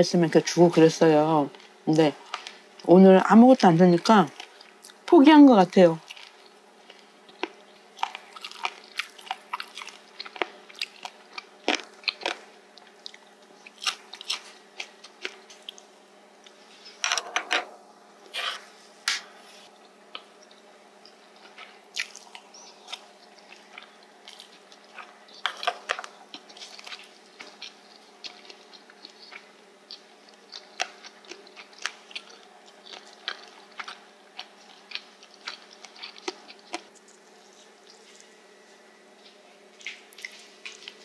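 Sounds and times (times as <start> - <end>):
crunchy chewing: 6.0 - 17.0, 19.7 - 41.0.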